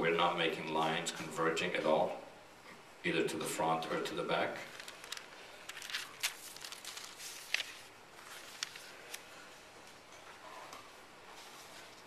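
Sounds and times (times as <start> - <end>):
paper rustling and clicking: 4.6 - 9.3.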